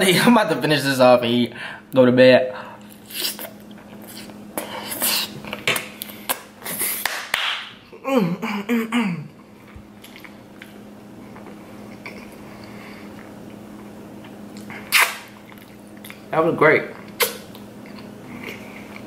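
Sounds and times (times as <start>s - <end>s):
steady low hum: 0.0s - 19.0s
person humming: 8.0s - 9.2s
wet chewing: 9.7s - 13.3s, 14.2s - 16.3s, 16.9s - 19.0s.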